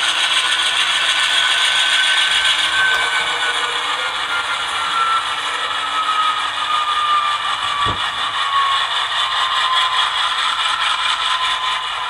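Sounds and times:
model locomotive diesel engine sound: 0.0 - 12.0
brief low thump: 7.8 - 8.2.

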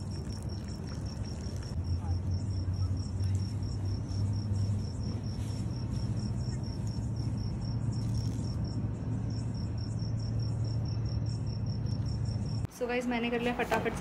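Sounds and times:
cricket chirping: 0.0 - 12.7
steady low hum: 0.0 - 12.8.

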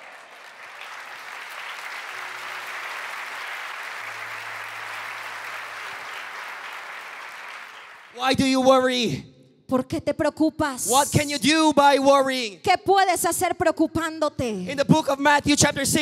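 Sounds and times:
congregation clapping: 0.0 - 8.7.

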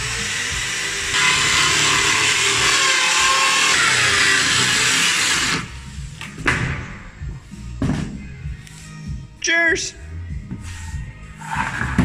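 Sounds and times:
power saw cutting wood panel: 0.0 - 5.7.

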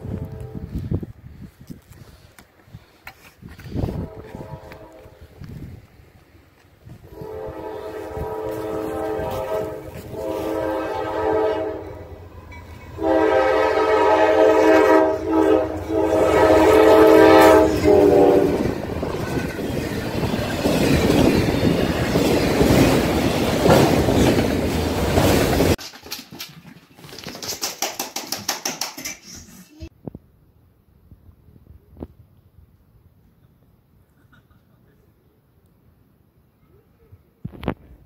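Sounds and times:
locomotive air horn blasts: 0.0 - 0.9, 3.8 - 5.4, 7.0 - 12.1, 13.0 - 18.7
train wheels rumbling on rails: 3.4 - 27.0.

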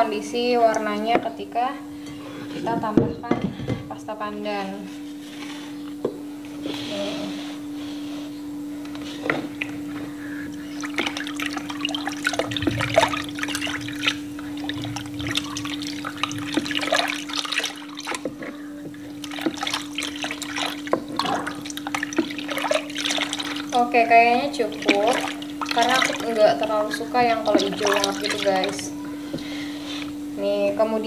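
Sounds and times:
batter sloshing in a bowl: 9.0 - 29.0.

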